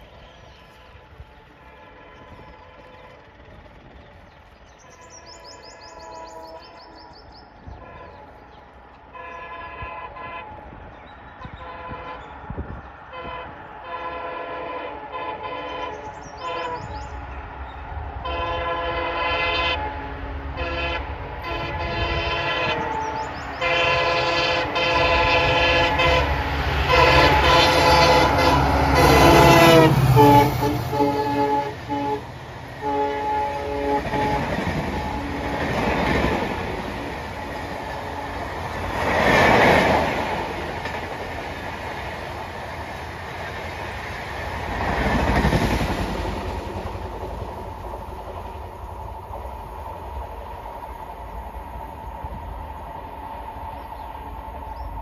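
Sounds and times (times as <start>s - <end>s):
diesel locomotive engine: 0.0s - 55.0s
train coaches clattering past: 0.0s - 55.0s
wheel and rail noise: 0.0s - 55.0s
train air horn: 0.6s - 3.6s, 4.8s - 10.8s, 11.4s - 12.4s, 13.1s - 17.2s, 18.2s - 36.0s.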